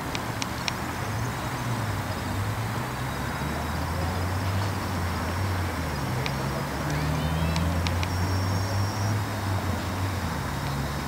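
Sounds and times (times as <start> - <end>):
faint high whine: 0.0 - 9.7
low engine-like hum: 0.0 - 11.0.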